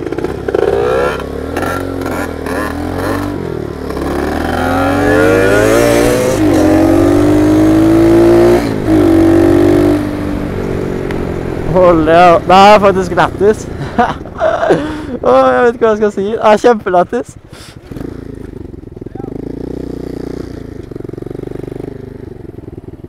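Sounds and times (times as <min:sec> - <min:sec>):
small motorbike engine accelerating: 0:00.0 - 0:10.0.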